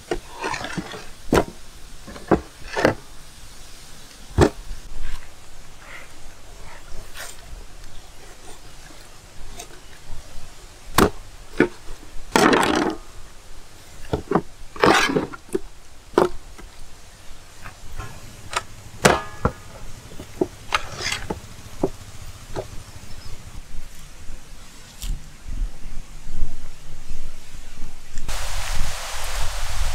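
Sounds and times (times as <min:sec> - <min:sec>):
scraping handling noises: 0:00.0 - 0:03.2, 0:04.1 - 0:13.2, 0:13.8 - 0:25.2.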